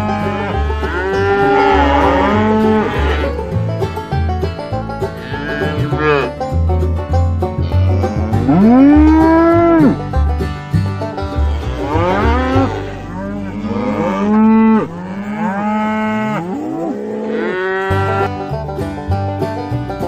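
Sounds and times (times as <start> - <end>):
cows mooing: 0.0 - 3.8, 5.1 - 6.4, 7.6 - 10.1, 11.2 - 18.4.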